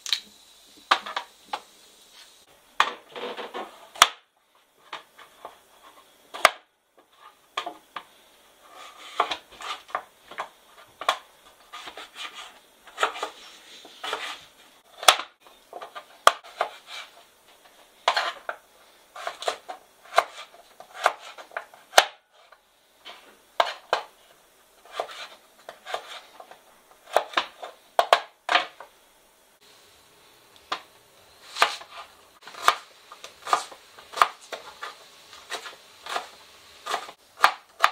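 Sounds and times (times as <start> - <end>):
knife cutting on cutting board: 11.7 - 14.5, 16.3 - 17.2, 19.2 - 21.6, 24.8 - 26.3, 31.5 - 32.8, 33.4 - 37.9.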